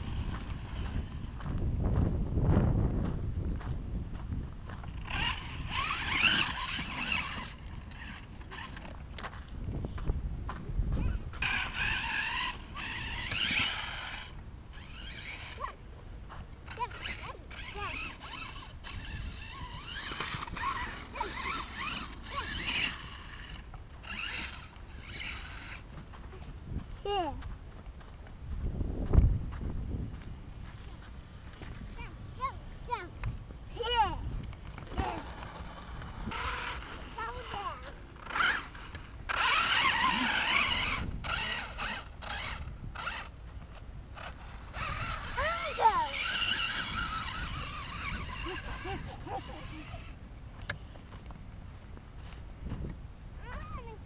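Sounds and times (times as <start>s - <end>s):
wind rumble on microphone: 0.0s - 50.3s, 51.6s - 54.0s
toy truck motor whining: 4.8s - 9.3s, 10.9s - 15.8s, 16.6s - 26.2s, 33.7s - 50.7s.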